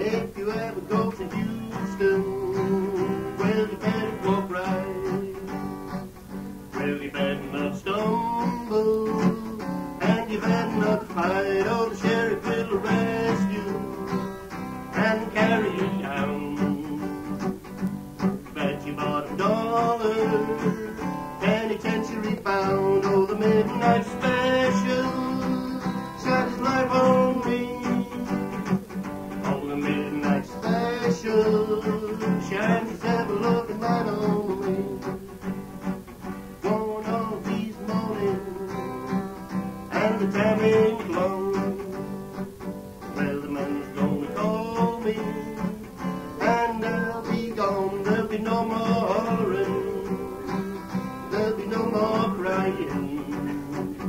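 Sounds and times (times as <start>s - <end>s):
live acoustic folk music: 0.0s - 54.0s.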